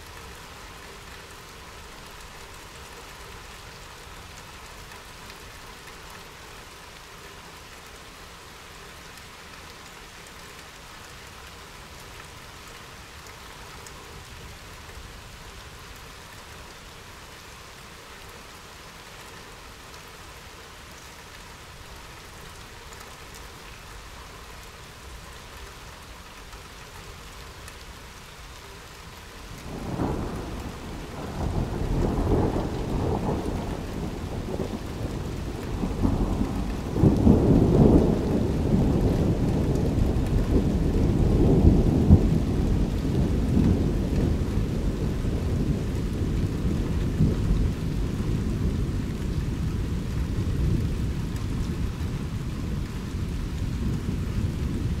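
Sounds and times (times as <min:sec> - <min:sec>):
steady rain: 0:00.0 - 0:55.0
thunder rumbling: 0:29.6 - 0:55.0.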